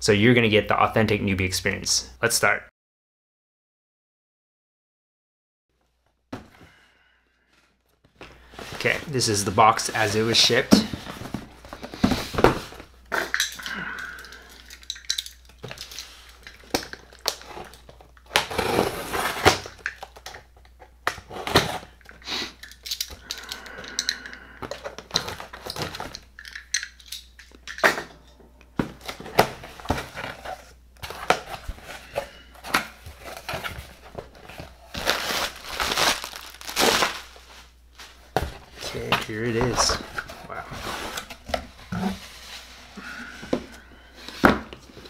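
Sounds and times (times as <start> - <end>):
cardboard flaps rustling: 28.8 - 42.9
tape tearing: 34.9 - 37.4.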